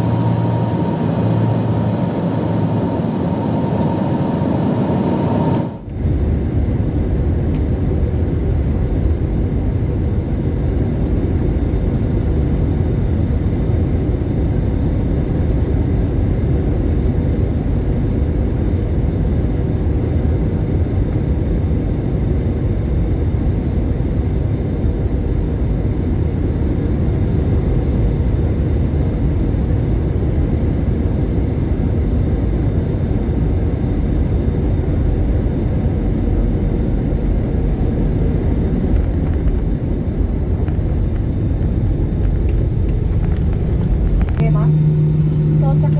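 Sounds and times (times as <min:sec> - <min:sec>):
jet engine cabin rumble: 0:00.0 - 0:45.9
faint steady hum: 0:31.2 - 0:45.9.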